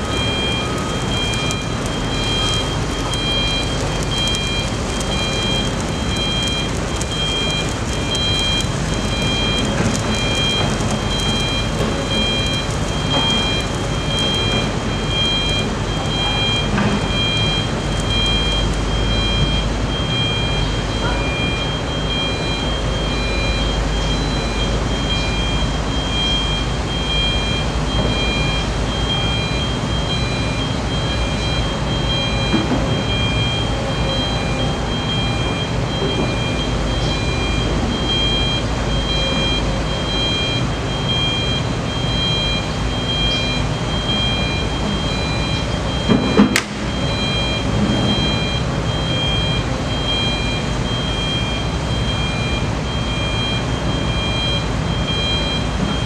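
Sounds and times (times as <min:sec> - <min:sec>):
diesel machinery rumble: 0:00.0 - 0:56.0.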